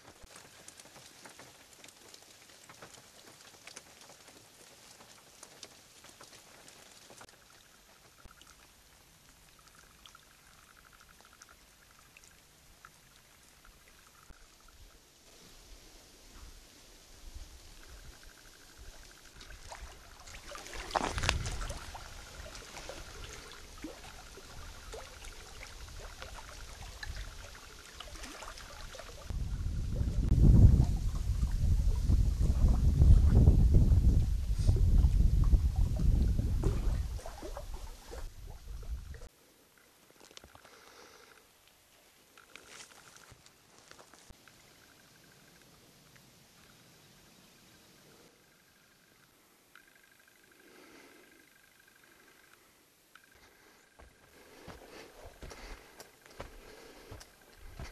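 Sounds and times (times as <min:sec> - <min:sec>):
raindrops ticking: 0:00.0 - 0:14.9
little clicks and splashes: 0:00.0 - 0:15.0, 0:17.7 - 0:29.3, 0:36.6 - 0:40.8, 0:41.5 - 0:46.3
light rain falling: 0:00.0 - 0:30.4
small waves lapping on rocks: 0:18.2 - 0:29.3.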